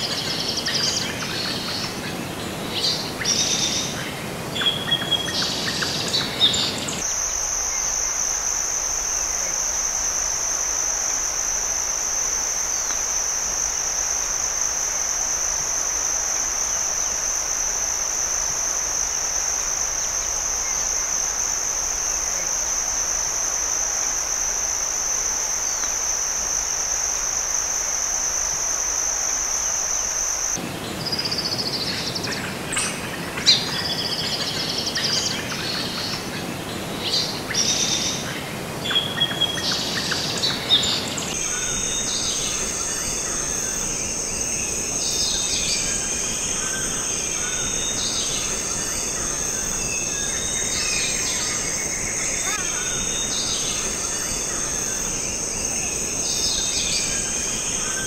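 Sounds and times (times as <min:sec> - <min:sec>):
high-pitched insect drone: 0:00.0 - 0:58.0
birds chirping: 0:38.9 - 0:58.0.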